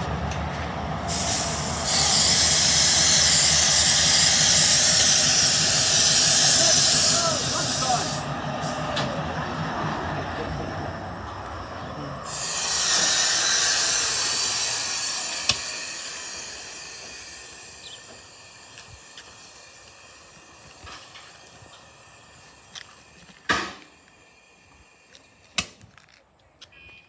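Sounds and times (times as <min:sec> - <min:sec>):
diesel locomotive running: 0:00.0 - 0:26.2
hiss of escaping air: 0:01.1 - 0:08.8, 0:12.2 - 0:25.8.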